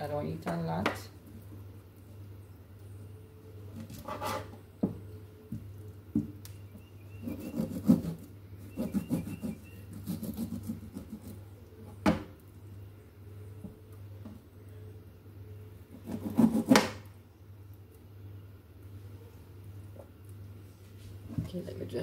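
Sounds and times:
knife scraping raw meat: 3.9 - 4.5, 7.2 - 11.5.

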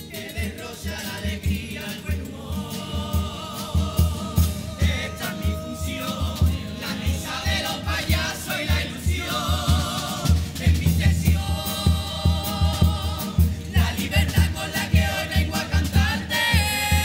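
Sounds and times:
chorus singing together: 0.0 - 17.0
steady bass drum beat: 0.0 - 17.0
strummed guitars: 0.0 - 17.0.

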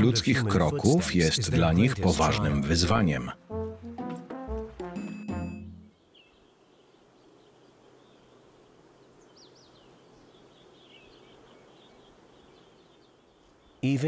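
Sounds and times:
distant small birds chirping: 5.0 - 14.0
soft steady hiss: 5.9 - 14.0.

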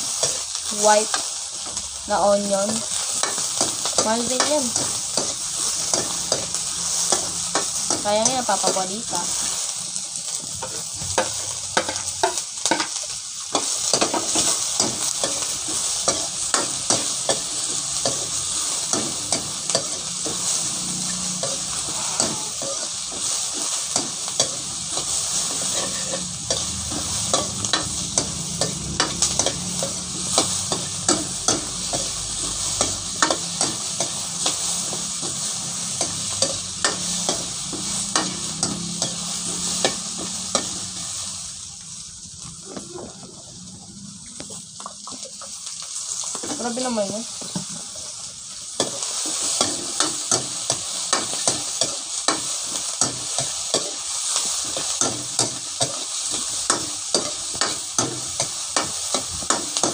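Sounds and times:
onions sizzling in oil: 0.0 - 59.9
metal ladle scraping wok: 13.9 - 41.3.

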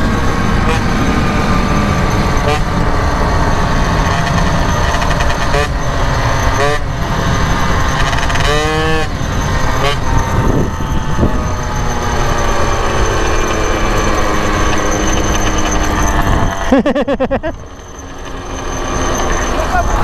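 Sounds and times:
two-stroke moped engine running: 0.0 - 20.0
wind on microphone: 9.4 - 12.2.

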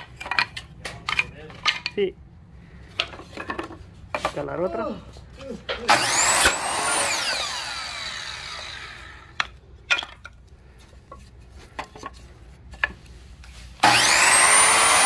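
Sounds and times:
saw blade winding down: 5.9 - 9.3, 13.8 - 15.0
saw motor whine spinning up: 5.9 - 9.3, 13.8 - 15.0.

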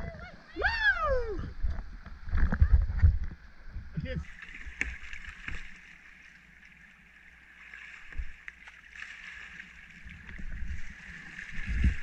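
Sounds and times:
creek water rushing: 4.0 - 12.0
paddle strokes splashing: 4.2 - 12.0.

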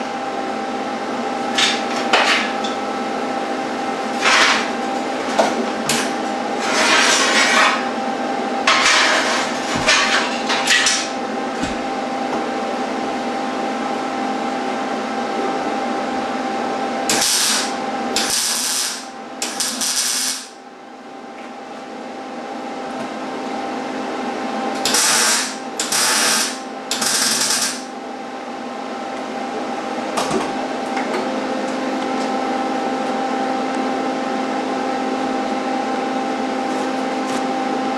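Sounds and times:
steady hum: 0.0 - 37.9
arc welding bursts: 17.1 - 20.6, 24.8 - 27.9.

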